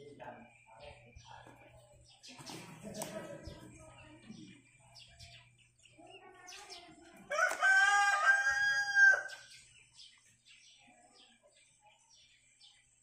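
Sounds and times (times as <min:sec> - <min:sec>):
rooster crowing: 0:07.3 - 0:09.4.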